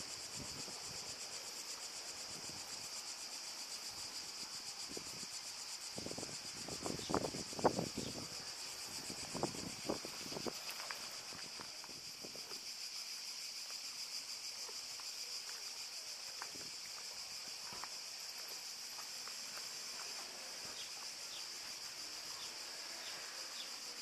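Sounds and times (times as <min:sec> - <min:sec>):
insects chirring: 0:00.0 - 0:24.0.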